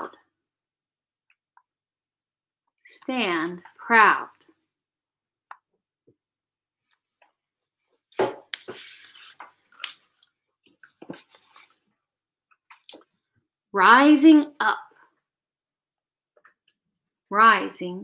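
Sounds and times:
page turning swish: 8.5 - 10.0.

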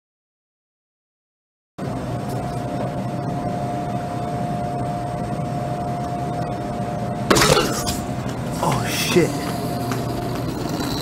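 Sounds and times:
faint steady hum: 1.8 - 11.0
body crashing onto concrete: 7.3 - 8.1.

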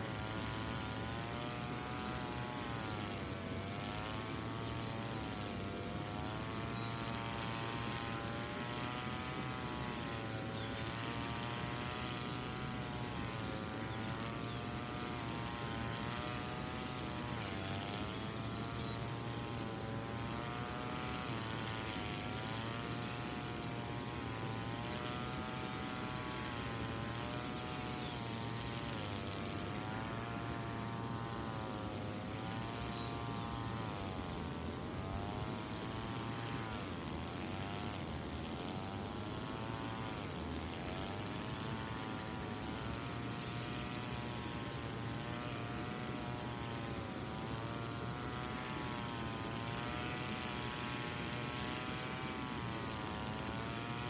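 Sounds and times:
brush cutter running: 0.0 - 54.0.

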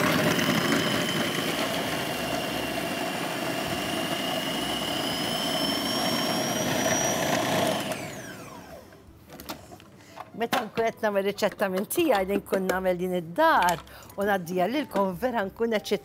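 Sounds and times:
food processor motor whining: 0.0 - 9.1.

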